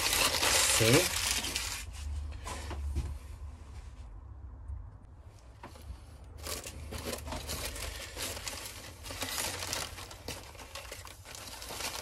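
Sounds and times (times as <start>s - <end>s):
paper wrapping crinkling: 0.0s - 2.0s, 6.4s - 12.0s.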